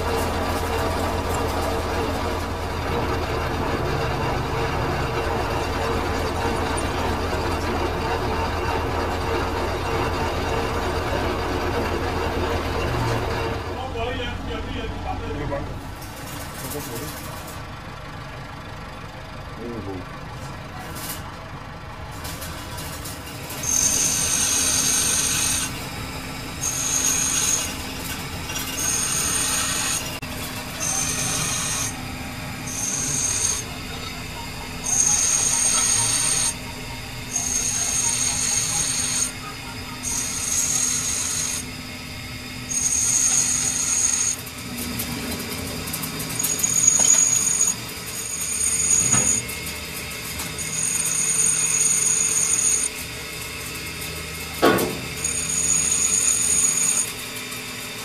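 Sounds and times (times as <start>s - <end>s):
metal scraping with high squeal: 22.2s - 53.1s, 53.9s - 57.6s
machine humming: 22.8s - 58.0s.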